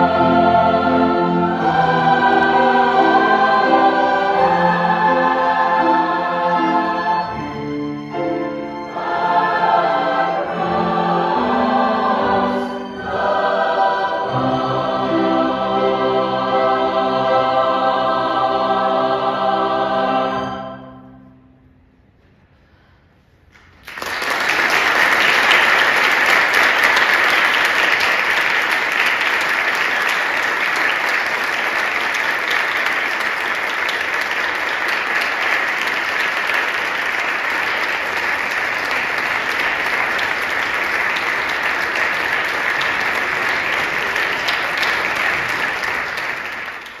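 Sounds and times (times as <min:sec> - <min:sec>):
audience applauding: 0:23.8 - 0:47.0.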